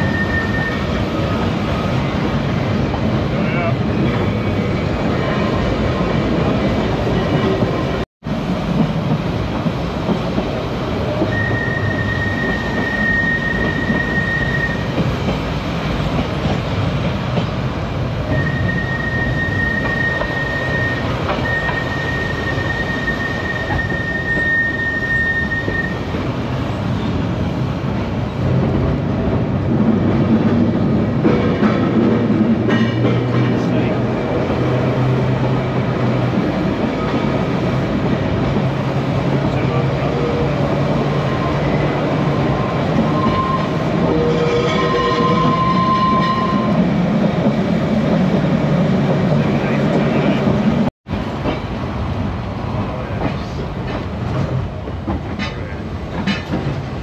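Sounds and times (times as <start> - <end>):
tram wheels rumbling on rail: 0.0 - 57.0
high-pitched wheel squeal: 18.3 - 26.0, 43.1 - 46.8.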